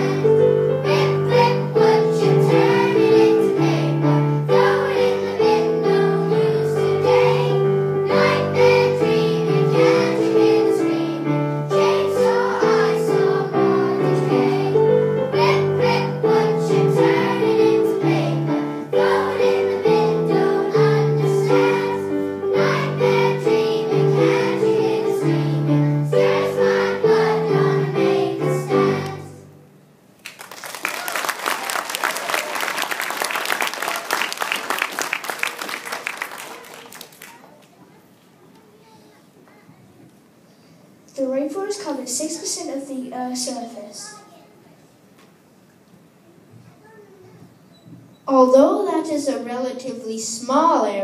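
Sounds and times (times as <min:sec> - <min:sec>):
children singing: 0:00.0 - 0:29.5
instrumental accompaniment: 0:00.0 - 0:29.6.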